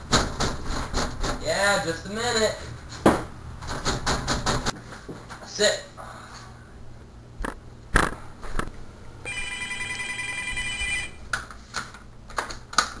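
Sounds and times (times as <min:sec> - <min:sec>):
electronic ringer warbling: 0:09.3 - 0:11.2.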